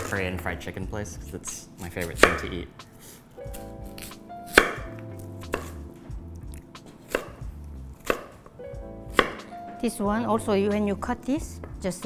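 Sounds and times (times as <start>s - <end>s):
knife chopping on wooden board: 2.0s - 2.5s, 3.5s - 6.0s, 6.8s - 9.5s.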